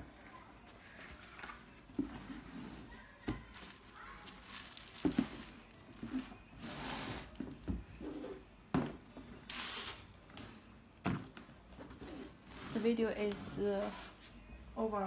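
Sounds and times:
rustling: 0.8 - 7.4.

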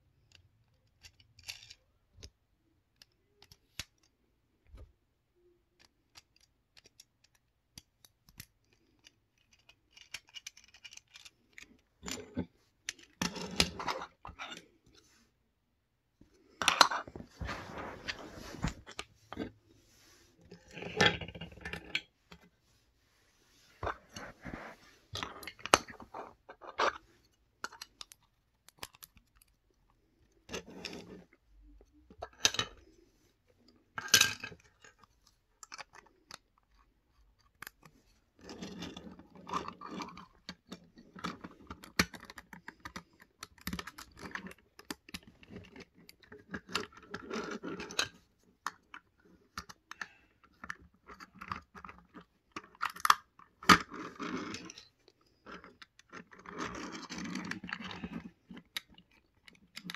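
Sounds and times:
plastic bricks clicking and rattling: 0.2 - 4.8, 5.4 - 14.7, 27.6 - 33.0, 33.6 - 59.9.

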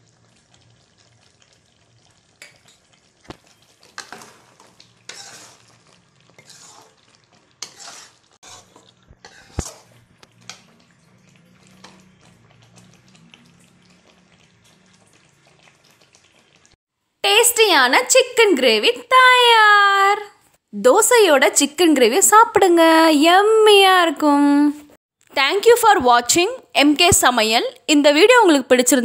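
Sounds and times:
metal ladle scraping pan: 2.4 - 12.9.

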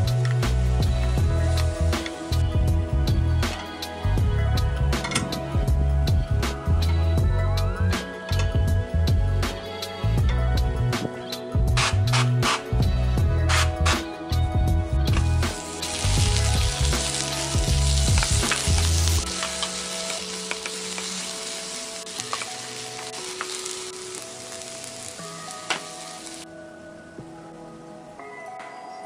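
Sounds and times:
soft background music: 0.0 - 29.0
onions sizzling in a pan: 15.2 - 26.4.

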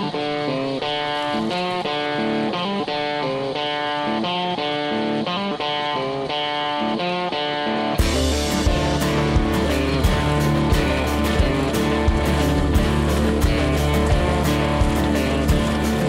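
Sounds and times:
plucked guitar pattern: 0.0 - 16.0
heavy band with deep bass: 8.0 - 16.0.

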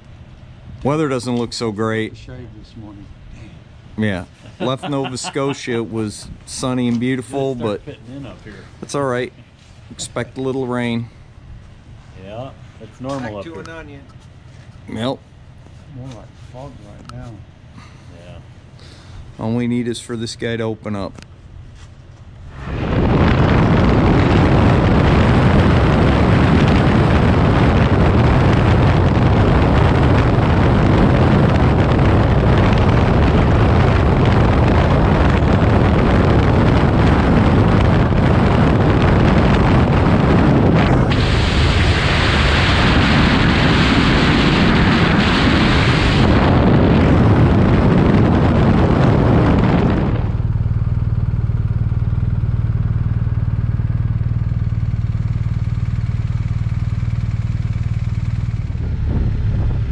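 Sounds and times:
wind and road noise: 4.6 - 59.9
motorcycle engine running: 21.4 - 59.9.

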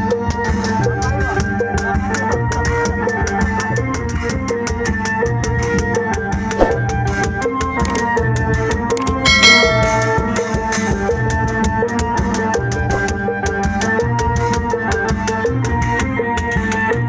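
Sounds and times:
bright ringing hit: 9.3 - 10.6.

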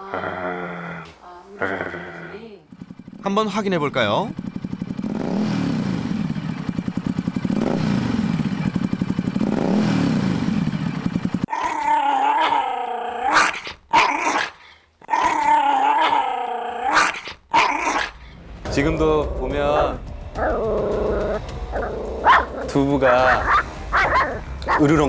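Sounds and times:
small dog growling: 0.0 - 2.6, 11.5 - 18.2, 19.8 - 24.8
motorcycle engine revving: 0.0 - 13.3, 16.1 - 25.0.

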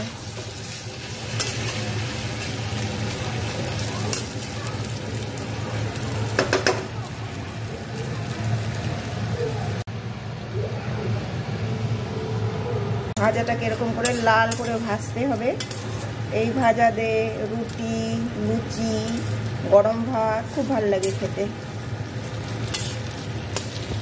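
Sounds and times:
vegetables sizzling in oil: 0.0 - 9.9, 13.2 - 24.0
metal spatula scraping pan: 13.7 - 16.2, 22.6 - 24.0.

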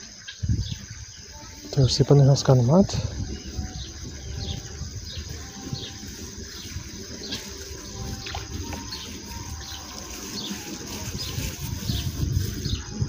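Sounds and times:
birds chirping: 0.0 - 13.0
water trickling: 0.0 - 13.0.

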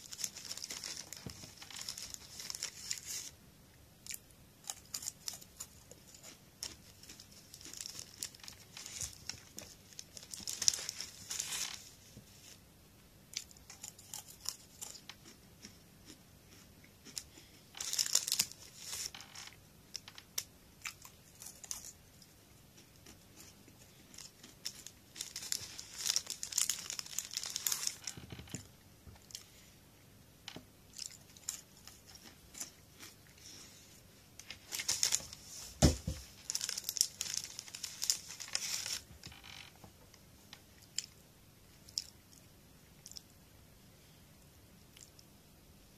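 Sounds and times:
crunching snack sticks: 0.0 - 3.3, 4.0 - 11.8, 13.3 - 28.6, 30.9 - 33.4, 36.4 - 39.7
plastic wrapper crinkling: 0.0 - 3.3, 6.1 - 12.0, 17.8 - 20.2, 24.2 - 28.6, 34.4 - 39.7.

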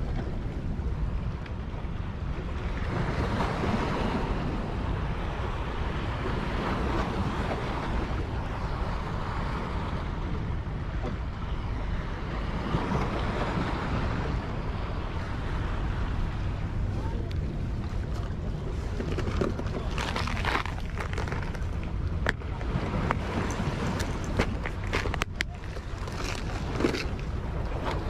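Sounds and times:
wind buffeting microphone: 0.0 - 28.0
rushing water: 12.2 - 28.0.

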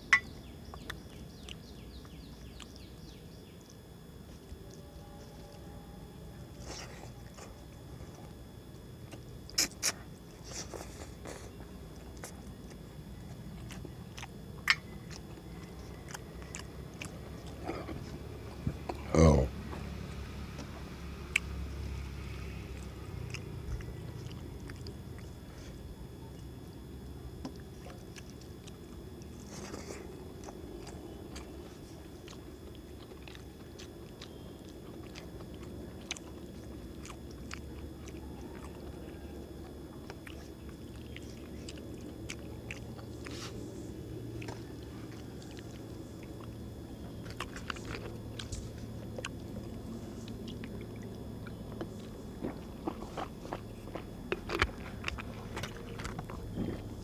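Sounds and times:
man chewing: 0.0 - 5.8, 6.5 - 19.8, 20.5 - 26.8, 27.4 - 57.0.

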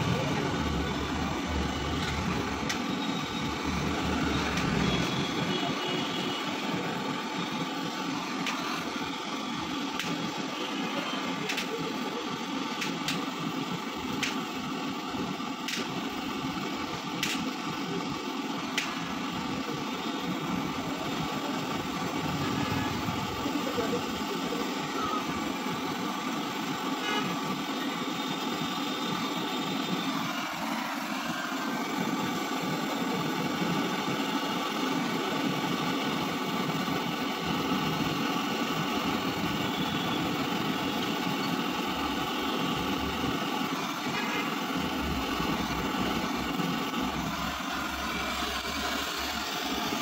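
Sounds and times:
gas torch hissing: 0.0 - 50.0
sharp clicks: 17.2 - 17.5.

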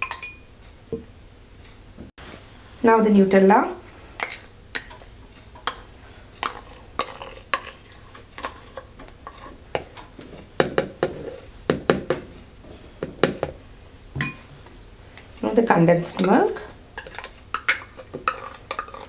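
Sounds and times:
metal spoon scraping a dish: 4.2 - 10.4, 11.0 - 11.5, 16.1 - 19.0.

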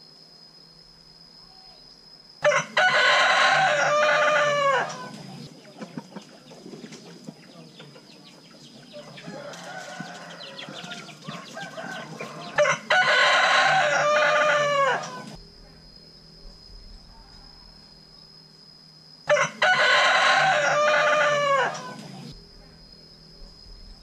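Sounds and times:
rooster crowing: 2.4 - 5.4, 8.8 - 15.4, 19.3 - 22.3
chickens clucking: 2.5 - 15.4.

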